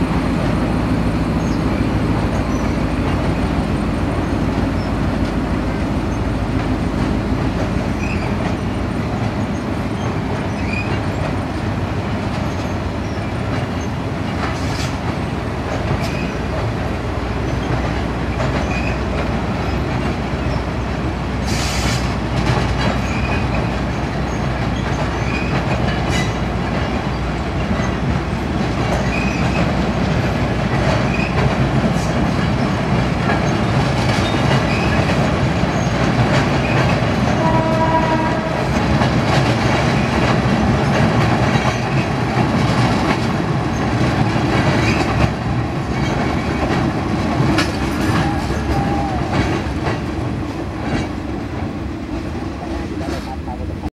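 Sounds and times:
train rumbling over viaduct: 0:00.0 - 0:53.9
wheels clacking over rail joints: 0:00.4 - 0:53.9.

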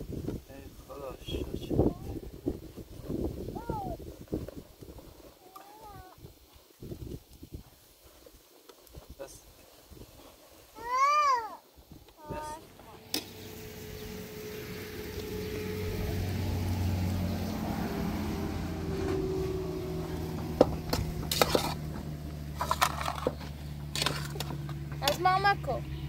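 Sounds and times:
engine running steadily: 0:12.6 - 0:26.0.

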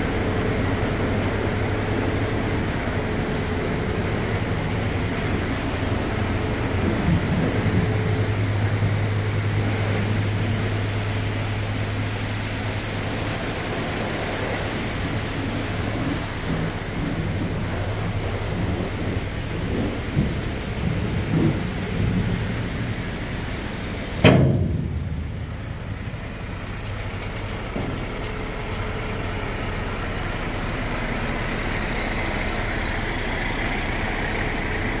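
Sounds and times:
truck engine running: 0:00.0 - 0:35.0
loud metal bang: 0:24.2 - 0:26.7.

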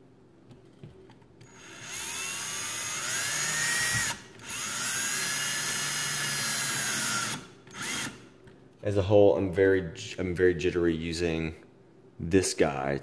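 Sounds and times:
cordless drill motor whine: 0:01.4 - 0:08.2.

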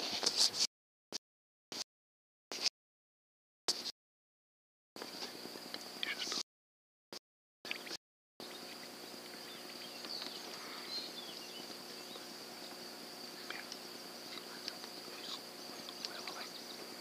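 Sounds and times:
crickets droning: 0:05.0 - 0:06.4, 0:07.7 - 0:17.0
faint insect chirps: 0:05.0 - 0:06.4, 0:07.7 - 0:17.0.

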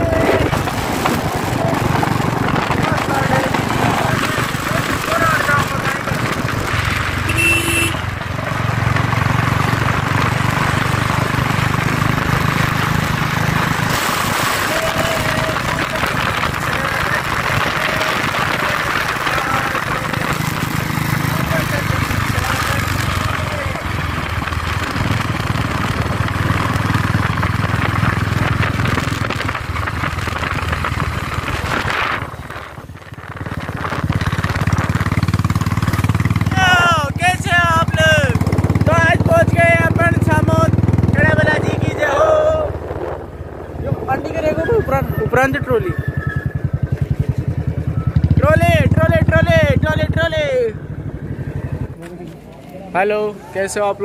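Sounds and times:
wind rushing: 0:00.0 - 0:07.4, 0:24.0 - 0:47.0
motorcycle engine running: 0:00.0 - 0:54.0.

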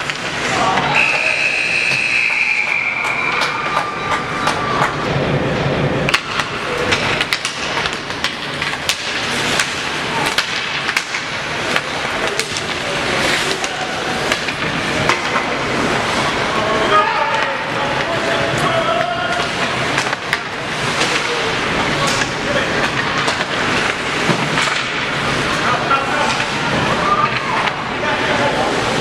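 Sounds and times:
hockey sticks and puck clacking: 0:00.0 - 0:01.3, 0:02.8 - 0:05.1, 0:06.0 - 0:27.9.

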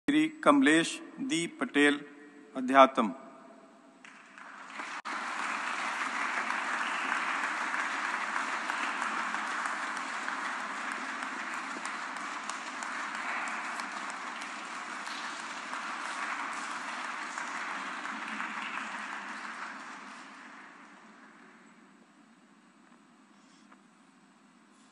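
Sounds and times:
audience applauding: 0:04.0 - 0:21.6.

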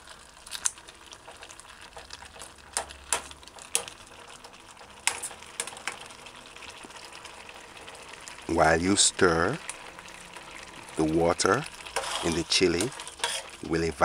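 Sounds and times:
metal spoon scraping a pot: 0:11.8 - 0:13.7.

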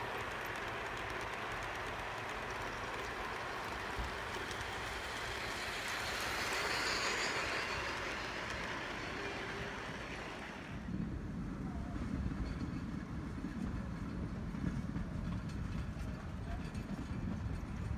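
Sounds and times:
wheels clicking over rail joints: 0:00.0 - 0:10.9, 0:12.2 - 0:17.9
model train wheels rolling: 0:00.0 - 0:11.0.

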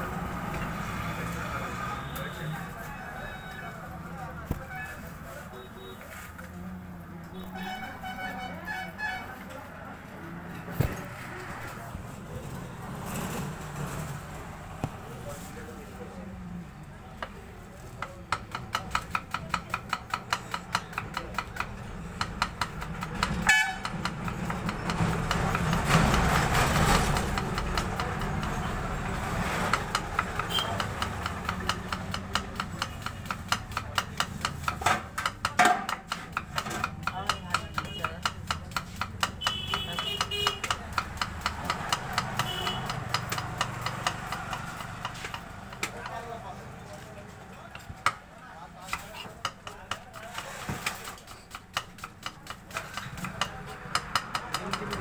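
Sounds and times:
knife chopping on wooden board: 0:18.0 - 0:28.7, 0:29.7 - 0:46.2, 0:48.8 - 0:55.0.

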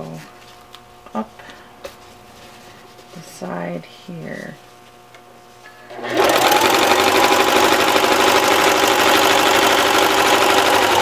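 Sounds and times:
electric sewing machine stitching: 0:05.9 - 0:11.0.

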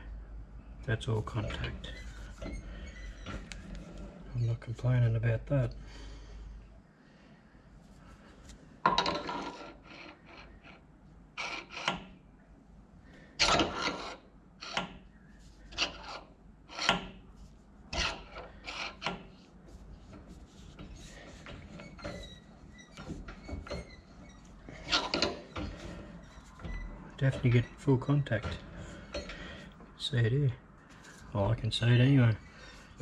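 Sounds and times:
metal-on-metal rubbing and scraping: 0:08.9 - 0:12.1, 0:13.4 - 0:29.8.

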